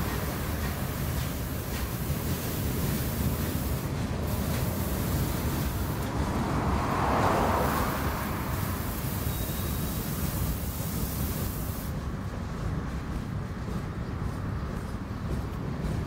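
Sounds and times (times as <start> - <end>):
train wheels rumbling on rails: 0.0 - 16.0
car passing by: 4.3 - 11.9.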